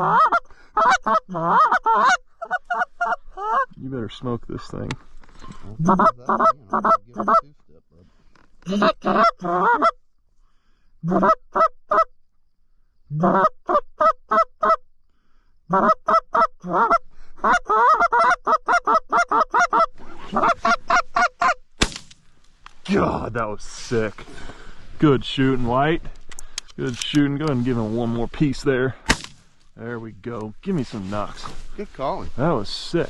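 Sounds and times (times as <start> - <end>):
goose call honks and clucks: 0.0 - 3.8, 5.5 - 7.6, 8.6 - 10.0, 11.0 - 12.1, 13.1 - 14.8, 15.7 - 21.6
shotgun blast: 21.8 - 22.2, 29.1 - 29.4.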